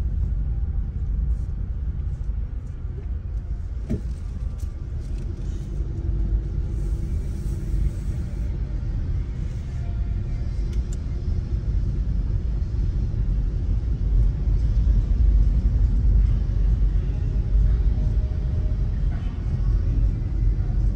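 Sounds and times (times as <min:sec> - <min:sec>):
car engine and tyre rumble: 0:00.0 - 0:20.9.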